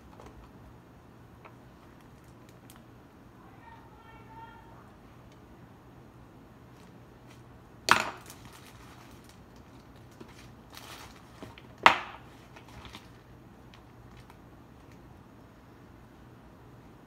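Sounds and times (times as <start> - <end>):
plastic bag crinkling: 8.1 - 15.0.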